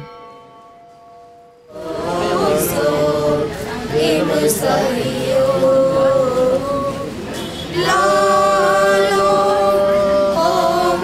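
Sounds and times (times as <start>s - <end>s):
group singing a cappella: 1.7s - 11.0s.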